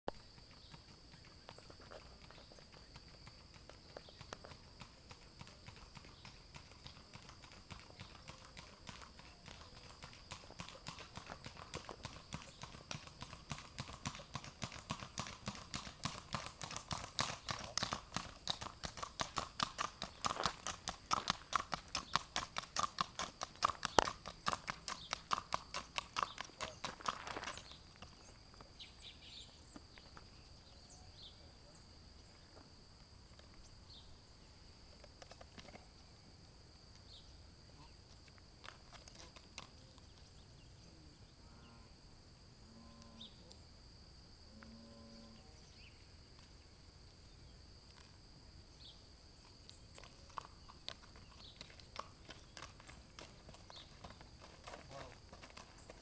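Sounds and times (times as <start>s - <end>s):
hooves clip-clopping on asphalt: 0.1s - 30.5s, 32.3s - 33.8s, 34.8s - 37.1s, 37.8s - 40.6s, 47.8s - 48.3s, 49.3s - 56.0s.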